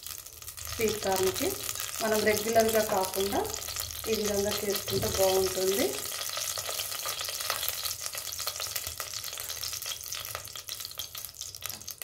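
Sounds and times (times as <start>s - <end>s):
oil sizzling and popping in a pot: 0.0s - 12.0s.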